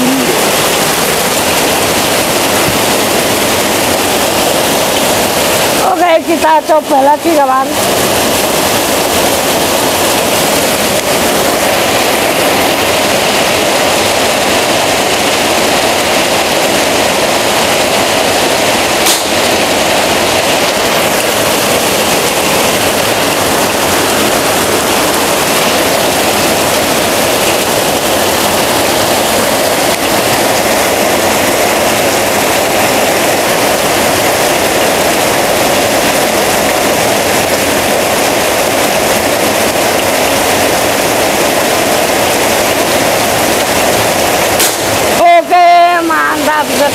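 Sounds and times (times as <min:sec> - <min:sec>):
heavy rain and splashing runoff: 0:00.0 - 0:46.9
air rifle shot: 0:19.1 - 0:19.4, 0:44.6 - 0:44.9.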